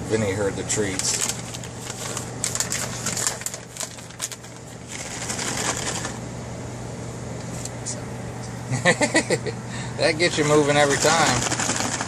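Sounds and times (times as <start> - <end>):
steady low hum: 0.0 - 12.0
plastic crinkling: 0.8 - 6.2, 10.8 - 12.0.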